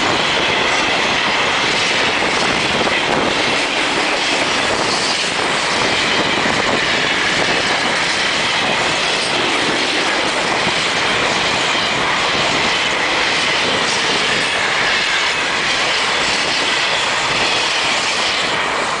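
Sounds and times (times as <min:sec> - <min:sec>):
train wheels rushing on rails: 0:00.0 - 0:19.0.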